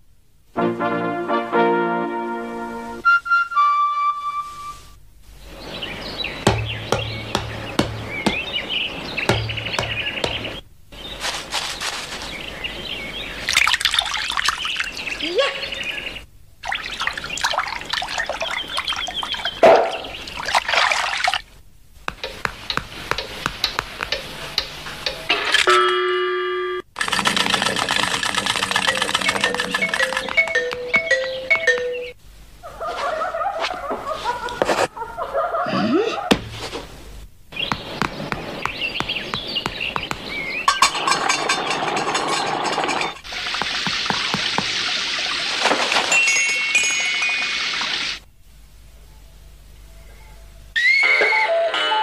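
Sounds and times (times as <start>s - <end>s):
cartoon water splashing: 16.6s - 21.5s, 27.0s - 31.9s, 43.0s - 48.2s
regular ticks: 22.1s - 25.3s, 27.0s - 32.0s
rain hissing: 36.8s - 48.3s.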